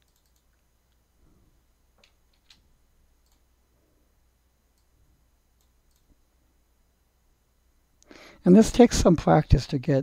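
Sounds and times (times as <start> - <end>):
faint computer mouse clicks: 0.0 - 1.0, 3.2 - 3.5, 5.6 - 6.2
low steady hum: 0.0 - 10.0.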